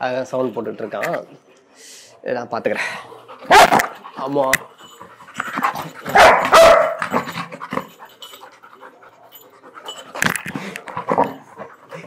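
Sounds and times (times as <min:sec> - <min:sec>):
dogs panting: 0:00.1 - 0:12.0
dogs scuffling in play: 0:03.4 - 0:12.0.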